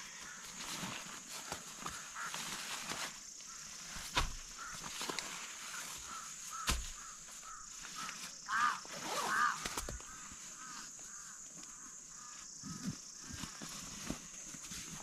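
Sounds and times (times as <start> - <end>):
harsh bird calls: 5.7 - 11.4.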